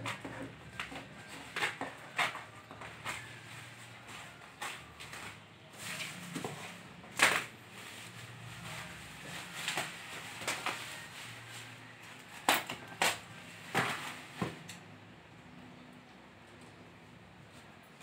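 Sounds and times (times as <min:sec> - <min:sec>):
plastic wrap rustling and crackling: 0:00.0 - 0:14.9
scissors cutting plastic: 0:12.2 - 0:14.9.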